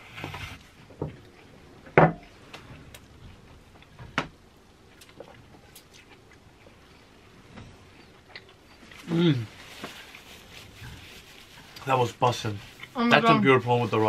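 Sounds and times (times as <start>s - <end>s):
chewing: 4.9s - 6.9s.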